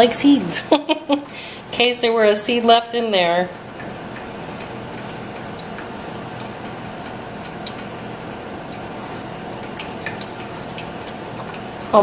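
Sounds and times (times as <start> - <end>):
steady low hum: 0.0 - 12.0
spoon ticking on mesh: 3.8 - 8.0.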